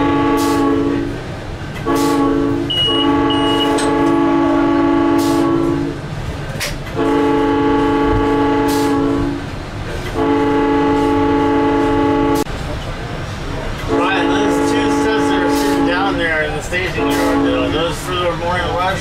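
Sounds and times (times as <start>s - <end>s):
train horn blasts: 0.0s - 1.2s, 1.8s - 6.0s, 6.9s - 9.5s, 10.1s - 12.5s, 13.9s - 18.0s.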